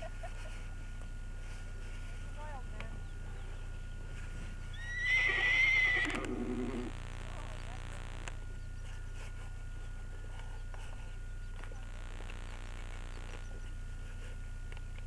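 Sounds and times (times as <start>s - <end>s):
pony whinnying: 4.7s - 6.9s.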